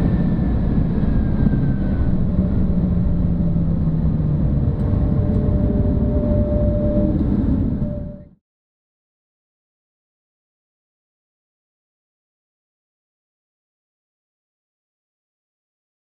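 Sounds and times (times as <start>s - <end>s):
car slowing with road and wind noise: 0.0s - 8.3s.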